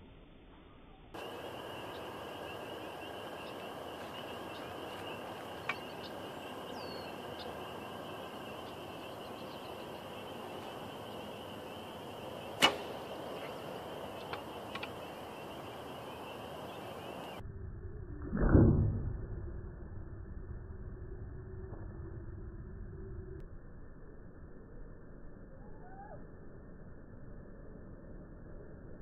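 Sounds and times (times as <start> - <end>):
outdoor background hiss: 0.0 - 17.4
sharp loud click: 12.6 - 13.0.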